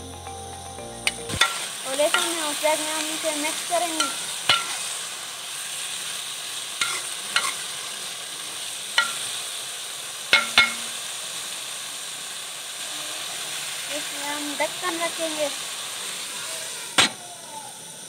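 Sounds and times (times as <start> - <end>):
chicken sizzling in hot fat: 0.0 - 18.0
metal spoon clanking on pan: 1.4 - 2.4, 4.0 - 4.8, 6.8 - 7.6, 9.0 - 9.3, 10.3 - 11.0.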